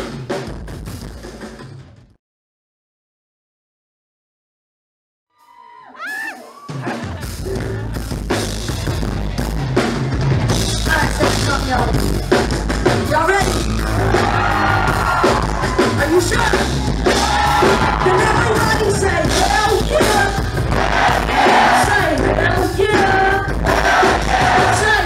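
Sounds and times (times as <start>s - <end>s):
bass: 0.0s - 2.2s, 6.8s - 25.0s
drum kit: 0.0s - 2.2s, 5.5s - 25.0s
person singing: 21.1s - 25.0s.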